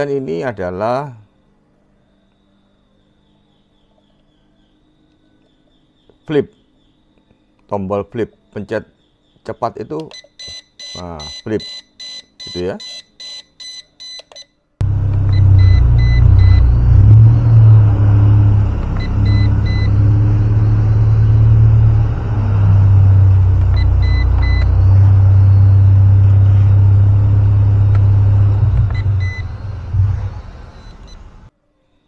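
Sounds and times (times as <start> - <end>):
short high electronic beeps: 15.3 - 21.5, 22.6 - 27.2, 28.1 - 31.2.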